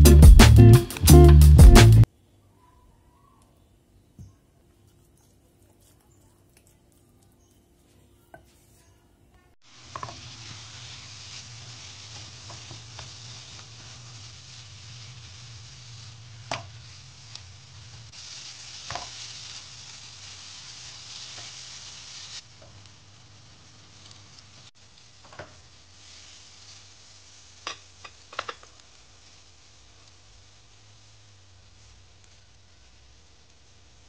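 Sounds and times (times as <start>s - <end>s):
spice paste sizzling in a pan: 9.6s - 34.0s
wooden spatula scraping a pan: 18.8s - 19.5s.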